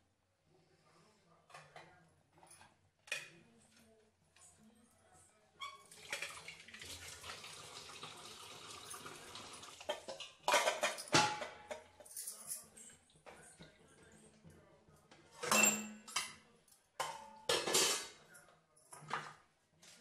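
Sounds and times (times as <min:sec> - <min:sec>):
knocks and clatter on pan: 0:09.9 - 0:11.9.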